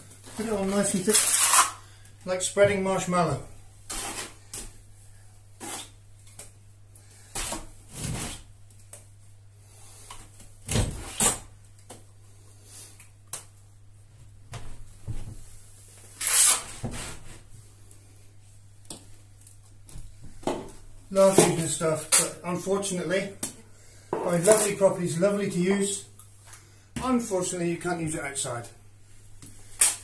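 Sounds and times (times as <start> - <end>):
trowel scraping plaster: 1.1 - 1.8.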